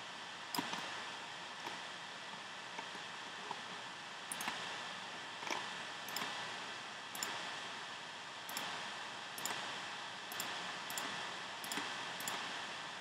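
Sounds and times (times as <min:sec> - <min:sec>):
steady background hiss: 0:00.0 - 0:13.0
computer mouse clicks: 0:00.5 - 0:00.9, 0:04.3 - 0:04.6, 0:05.4 - 0:06.4, 0:07.2 - 0:07.4, 0:08.5 - 0:08.8, 0:09.4 - 0:09.6, 0:10.3 - 0:12.5.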